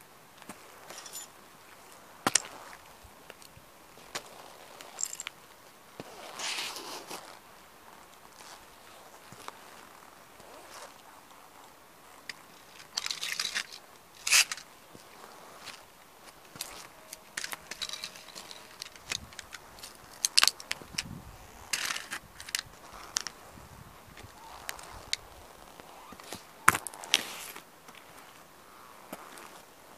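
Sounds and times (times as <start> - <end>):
toy cars crunching under boot: 12.2 - 28.4, 29.0 - 29.7
plastic pieces clicking: 17.1 - 21.1.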